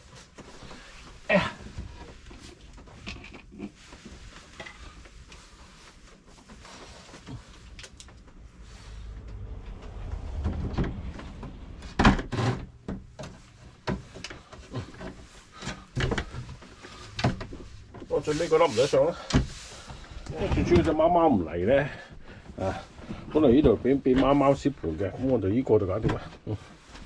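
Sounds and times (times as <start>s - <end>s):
low dull noise: 8.0s - 13.9s
knocks and clunks of handling: 9.1s - 18.3s, 19.1s - 21.2s, 25.8s - 27.0s.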